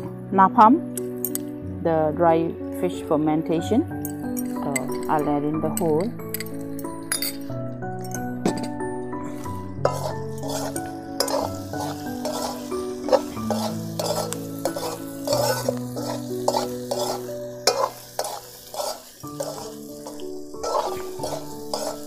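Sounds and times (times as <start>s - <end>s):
metal spoon scraping wok: 8.6s - 22.0s
food sizzling: 9.2s - 22.0s
spoon clinking against pan: 9.8s - 22.0s.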